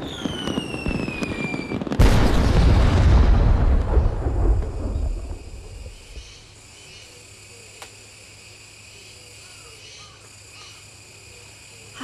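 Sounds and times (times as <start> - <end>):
insects chorus: 0.0 - 12.0
faint bird calls: 8.9 - 12.0.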